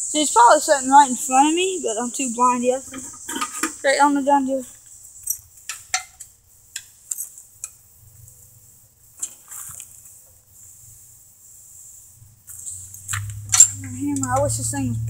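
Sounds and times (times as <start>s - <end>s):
metal tools tapping engine: 12.9s - 15.0s.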